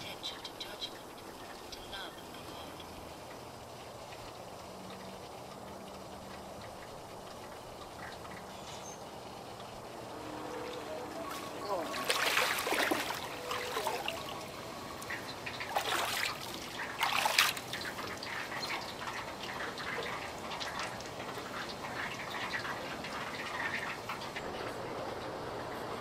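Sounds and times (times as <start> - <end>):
water sloshing and dripping in tub: 2.4 - 24.8
water splashing off a person: 11.8 - 14.2, 15.6 - 20.2.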